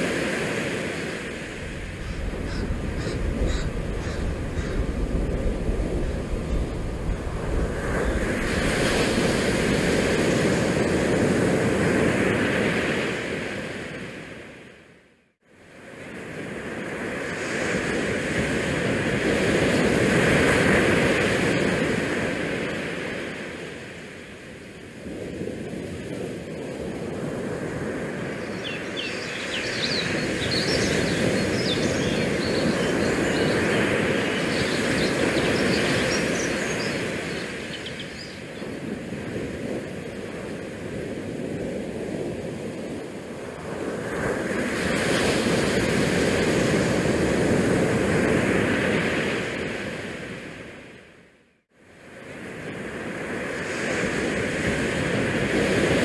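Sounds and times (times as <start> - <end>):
open water rushing: 0.0 - 13.9, 26.8 - 50.2
wind: 0.0 - 56.0.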